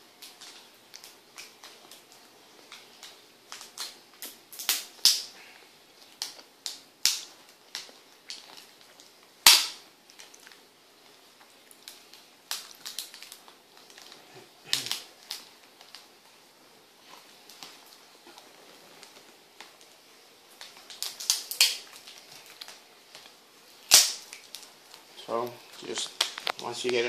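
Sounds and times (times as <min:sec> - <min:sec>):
plastic clicks and snaps: 0:20.6 - 0:23.3.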